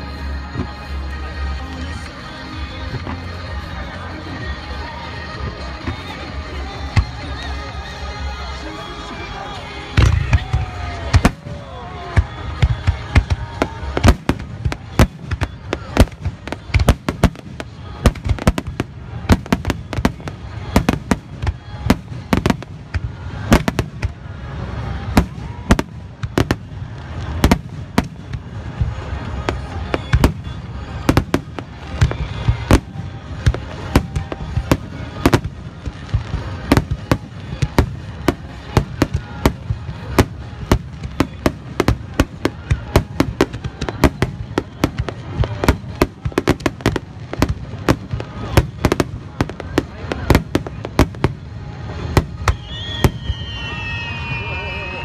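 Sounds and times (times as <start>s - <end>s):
fireworks rumble and crackle: 0.0s - 55.0s
fireworks booming: 9.9s - 54.2s.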